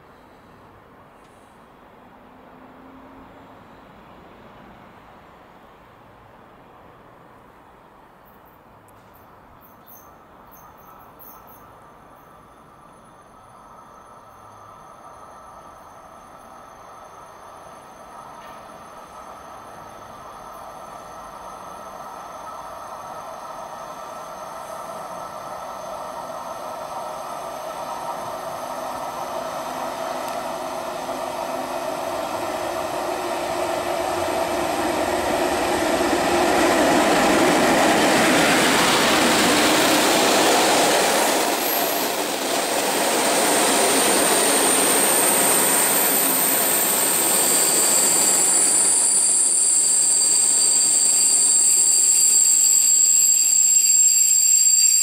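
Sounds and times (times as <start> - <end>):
electric locomotive passing: 1.7 - 8.0, 9.9 - 55.0
high-pitched brake squeal: 43.6 - 55.0.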